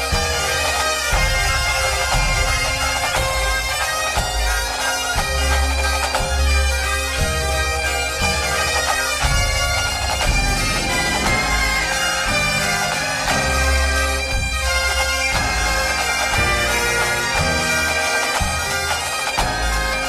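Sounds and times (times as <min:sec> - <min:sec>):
bagpipe tune with drone: 0:00.0 - 0:20.0.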